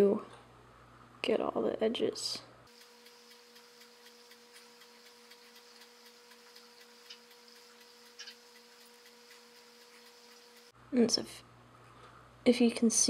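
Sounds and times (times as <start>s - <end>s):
faint steady hum: 0.0s - 13.0s
tiny taps: 2.7s - 10.7s
faint even ticking: 2.7s - 10.8s.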